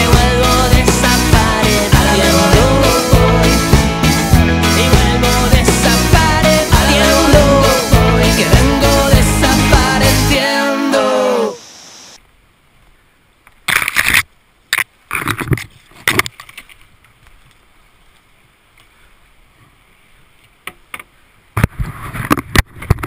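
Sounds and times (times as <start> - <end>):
song playing: 0.0 - 11.7.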